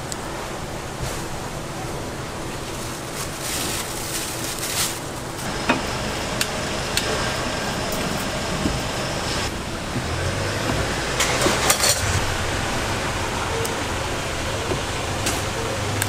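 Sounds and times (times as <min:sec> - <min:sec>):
street food stall background: 0:00.0 - 0:16.0
green onions rustling in tray: 0:02.5 - 0:05.5.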